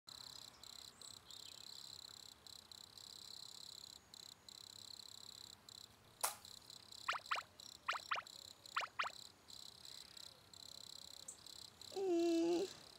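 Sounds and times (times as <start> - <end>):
crickets chirring: 0.1 - 12.9
short sharp pop: 6.2 - 6.4.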